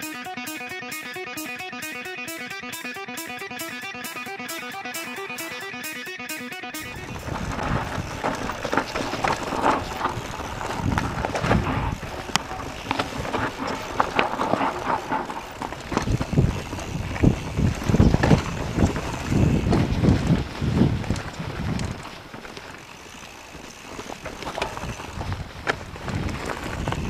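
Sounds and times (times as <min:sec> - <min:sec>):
wind buffeting microphone: 0:06.8 - 0:23.2, 0:24.0 - 0:27.0
bike rattling: 0:06.8 - 0:27.0
bike tyres on dirt: 0:06.8 - 0:27.0.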